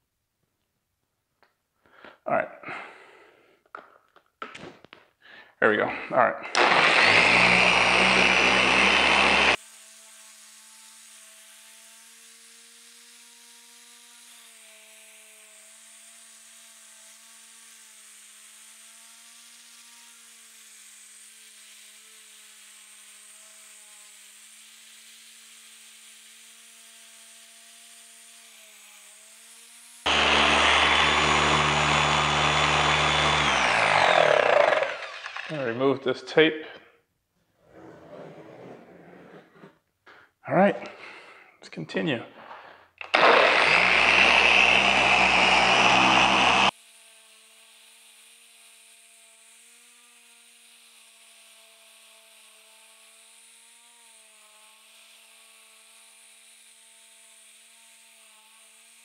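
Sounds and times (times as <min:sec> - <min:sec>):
car polisher running: 0:06.5 - 0:09.6, 0:30.1 - 0:35.7, 0:43.0 - 0:46.8.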